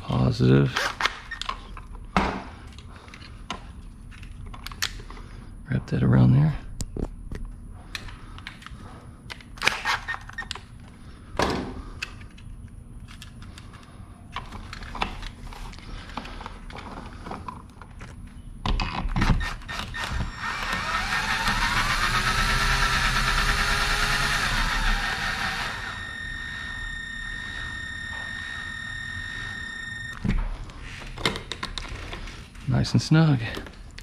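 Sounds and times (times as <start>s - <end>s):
cordless drill driving screw: 19.2s - 30.2s.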